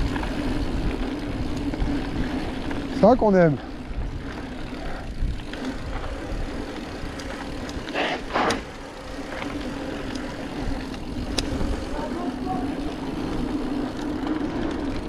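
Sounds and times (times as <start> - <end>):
bike tyres rattling on dirt: 0.0 - 15.0
scattered clicks: 6.7 - 11.7.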